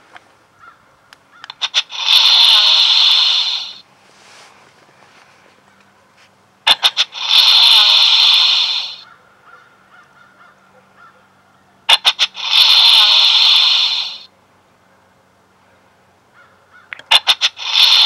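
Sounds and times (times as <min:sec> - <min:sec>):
deer snort-wheeze: 0:01.5 - 0:03.8, 0:06.6 - 0:09.1, 0:11.9 - 0:14.3, 0:17.1 - 0:18.0.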